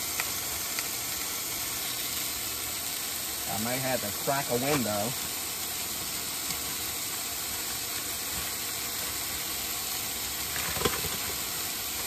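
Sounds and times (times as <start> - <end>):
meat sizzling in a pot: 0.0 - 12.0
short crackle: 10.5 - 11.5.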